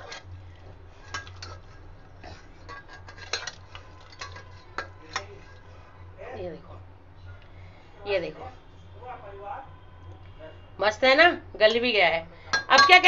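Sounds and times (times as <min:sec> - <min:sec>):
metal spatula clinking on pot: 0:01.0 - 0:01.8, 0:02.6 - 0:05.4, 0:12.5 - 0:13.0.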